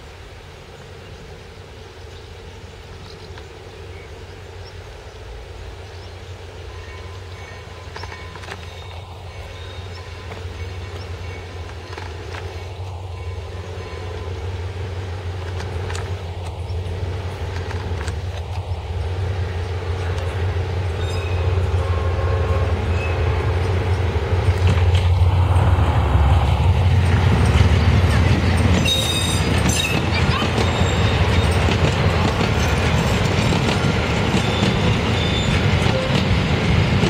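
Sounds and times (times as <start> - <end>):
diesel locomotive engine drone: 0.0 - 37.0
train coaches rolling by: 0.0 - 37.0
high wheel squeal: 6.7 - 14.5, 20.9 - 23.4, 28.7 - 31.7, 34.4 - 36.4.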